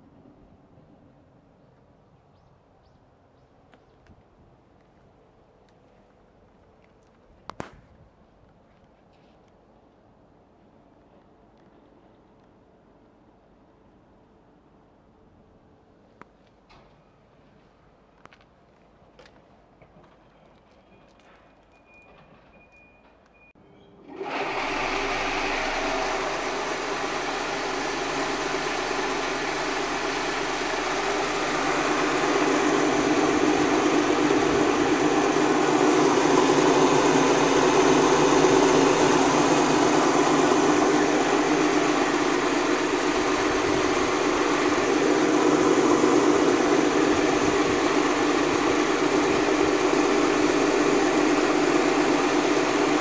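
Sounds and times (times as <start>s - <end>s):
vibrating sieve humming: 24.1s - 53.0s.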